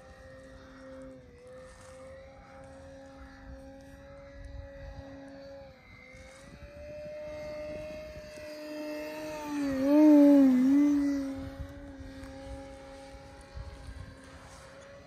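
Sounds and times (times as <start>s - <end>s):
model airplane motor whine: 0.0s - 15.0s.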